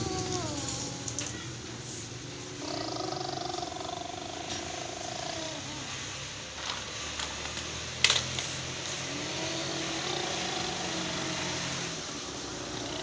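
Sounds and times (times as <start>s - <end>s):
plastic toy trucks knocking: 6.6s - 8.6s.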